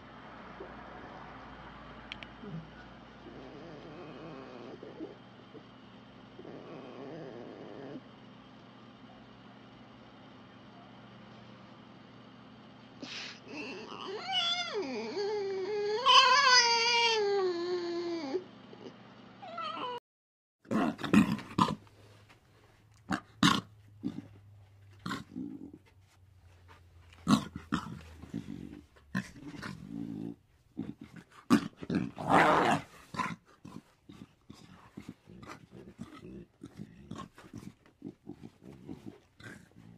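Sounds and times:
fox squealing: 13.5 - 17.4.

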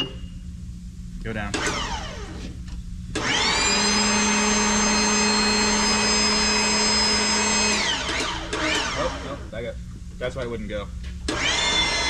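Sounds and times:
hydraulic pump motor whining: 1.5 - 9.4, 11.3 - 12.0.

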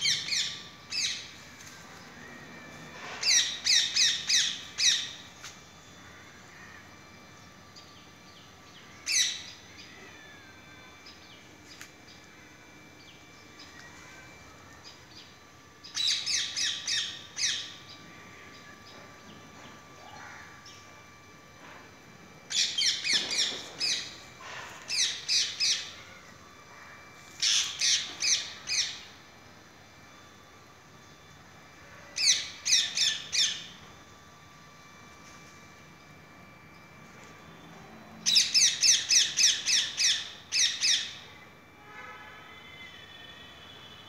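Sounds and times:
parakeet calling: 38.2 - 41.2.

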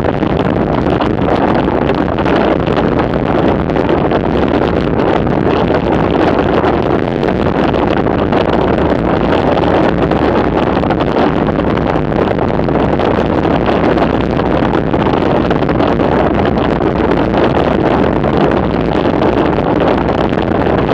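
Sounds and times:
wind buffeting microphone: 0.0 - 20.9.

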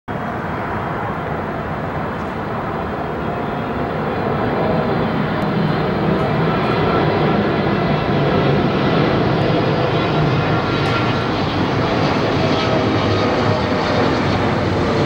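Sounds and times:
jet engines rumbling: 0.1 - 15.0.

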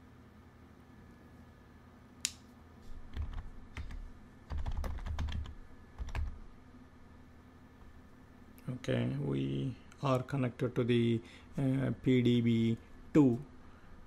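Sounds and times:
typing on computer keyboard: 3.1 - 6.4.

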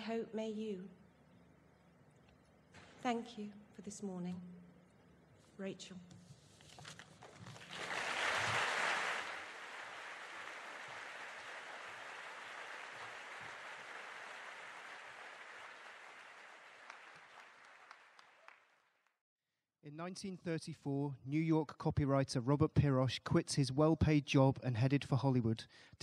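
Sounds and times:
audience applauding: 7.4 - 19.1.

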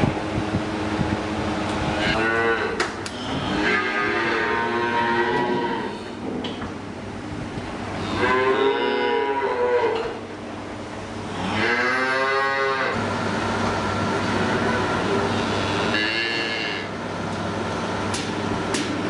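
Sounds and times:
steady low hum: 0.0 - 19.0
calves mooing: 2.0 - 6.1, 8.0 - 10.2, 11.3 - 13.0, 14.6 - 16.9.

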